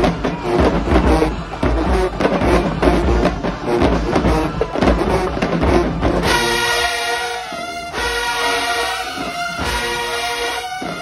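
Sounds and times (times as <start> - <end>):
bass drum beat: 0.0 - 6.8
brass held chord: 6.2 - 11.0.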